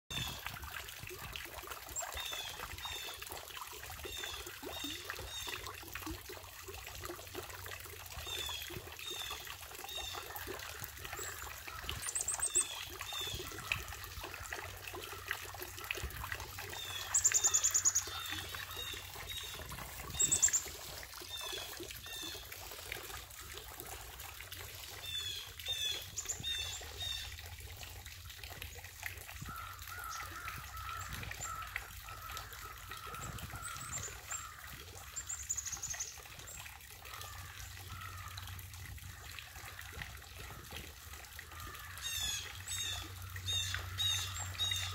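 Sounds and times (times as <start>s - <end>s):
fountains trickling: 0.1s - 44.9s
high-pitched bird calls: 16.8s - 22.4s.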